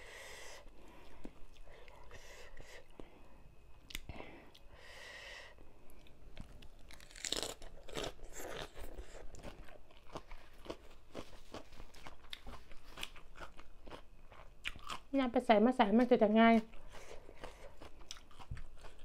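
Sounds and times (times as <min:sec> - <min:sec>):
chewing and crunching food: 0:05.9 - 0:15.2, 0:16.5 - 0:19.0.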